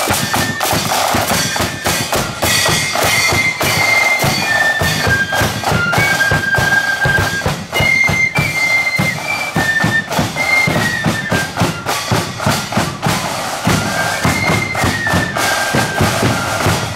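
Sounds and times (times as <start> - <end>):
cymbals: 0.0 - 16.9
drum beats: 0.0 - 16.9
flutes playing melody: 0.0 - 16.9.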